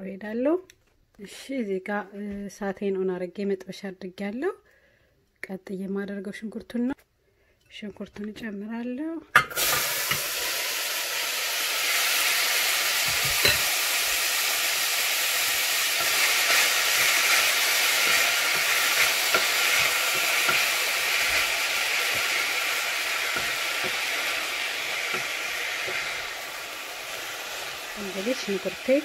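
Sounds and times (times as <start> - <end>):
onion sizzling in a saucepan: 9.4 - 29.0
wooden spoon stirring: 15.9 - 26.4.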